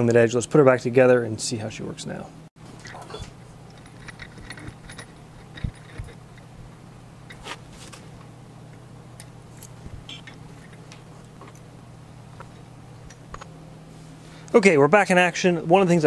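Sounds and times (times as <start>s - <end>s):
steady low hum: 0.0s - 16.0s
small metal clicks and clinks: 3.7s - 6.5s.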